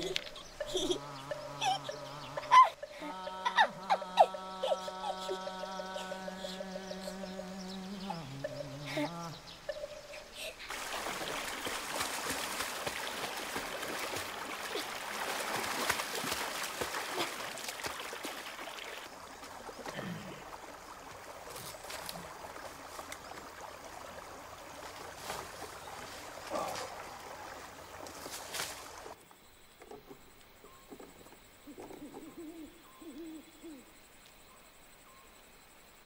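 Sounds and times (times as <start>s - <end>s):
flowing stream: 0.0s - 29.2s
person swimming and splashing: 10.6s - 29.2s.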